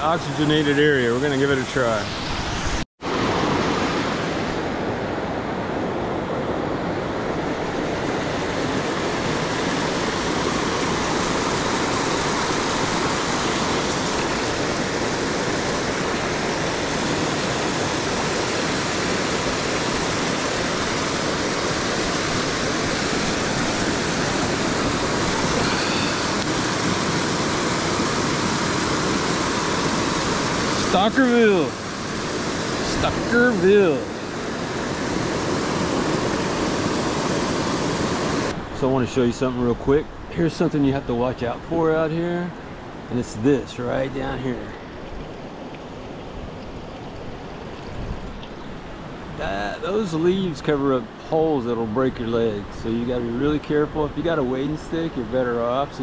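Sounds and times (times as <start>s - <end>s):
river water tumbling over rocks: 8.1s - 38.5s.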